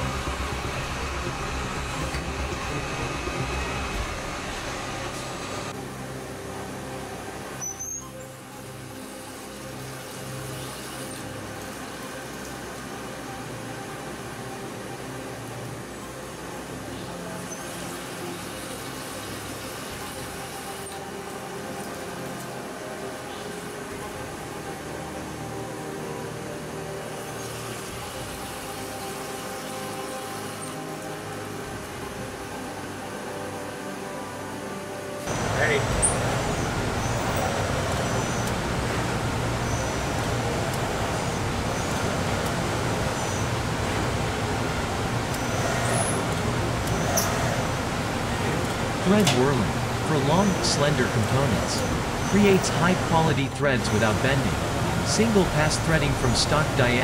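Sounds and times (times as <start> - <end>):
machine rushing noise with hum: 0.0 - 7.4
low machine hum: 0.0 - 7.6, 8.6 - 57.0
machine spindle and coolant noise: 0.0 - 57.0.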